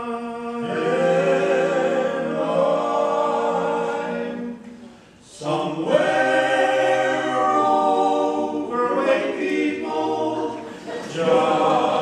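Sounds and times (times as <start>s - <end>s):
male quartet singing in harmony: 0.0s - 12.0s.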